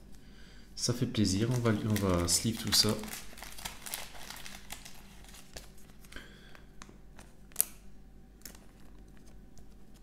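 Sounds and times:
cards and sleeves rustling: 1.3s - 6.2s.

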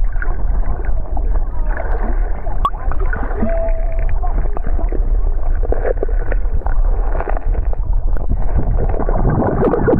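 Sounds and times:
bubbles: 0.0s - 9.9s
underwater rumble of moving water: 0.0s - 9.9s.

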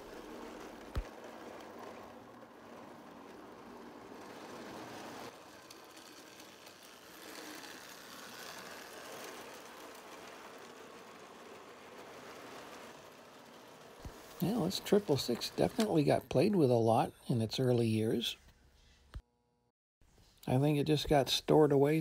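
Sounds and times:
toy train motor whirring: 0.0s - 16.9s
train wheels rolling on track: 0.0s - 17.6s.

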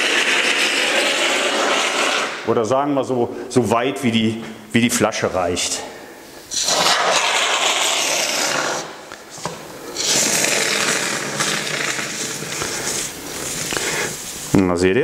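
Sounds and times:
foam hissing from aerosol can: 0.0s - 2.5s, 6.5s - 14.6s.

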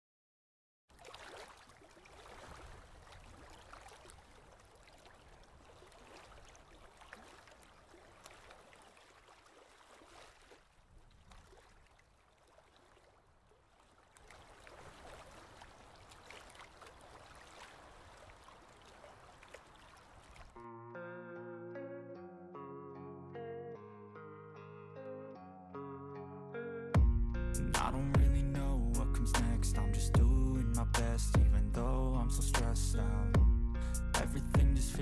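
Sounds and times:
faint water trickling: 0.9s - 20.6s.

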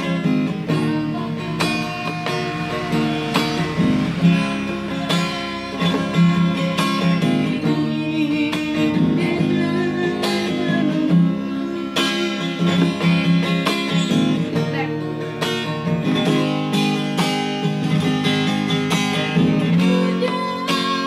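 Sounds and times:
woman singing: 0.0s - 3.8s, 6.0s - 13.1s, 19.5s - 21.0s
strummed guitar: 0.0s - 21.0s.

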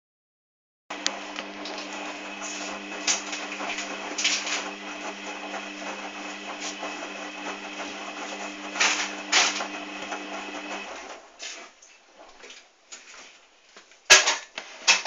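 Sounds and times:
washing machine motor hum: 0.9s - 11.6s.

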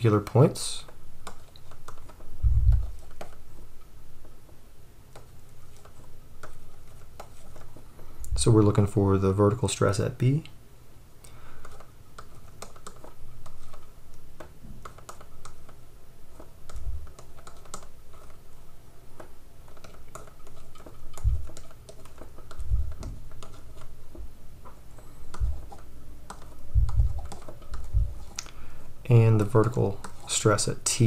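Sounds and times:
dull low thumps: 2.4s - 3.0s, 16.8s - 17.1s, 21.2s - 21.5s, 22.6s - 23.3s, 25.3s - 25.7s, 26.7s - 27.2s, 27.8s - 28.2s
stylus tapping on pen tablet: 19.2s - 28.5s.

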